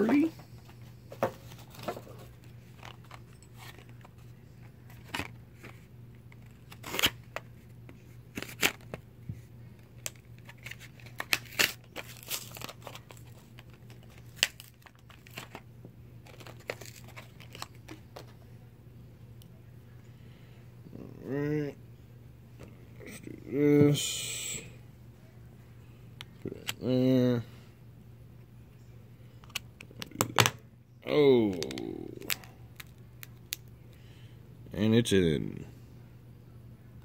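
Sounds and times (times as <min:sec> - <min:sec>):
packaging crinkling and tearing: 0:06.4 - 0:07.4, 0:08.3 - 0:09.0, 0:09.9 - 0:15.6, 0:16.2 - 0:18.3, 0:31.5 - 0:33.6.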